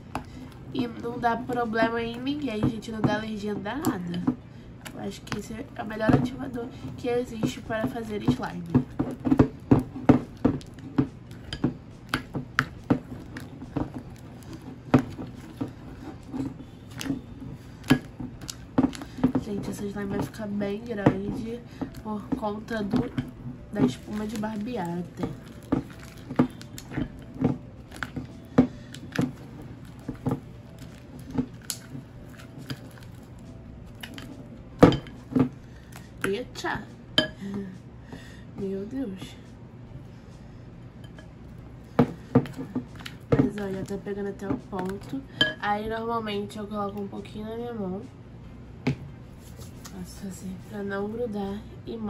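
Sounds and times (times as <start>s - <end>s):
wet sticky slime squishes: 22.8s - 34.5s.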